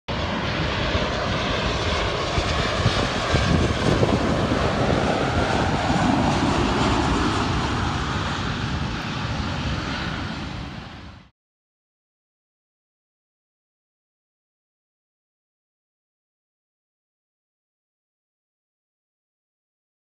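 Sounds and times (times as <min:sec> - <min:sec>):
jet engines roaring: 0:00.1 - 0:11.3.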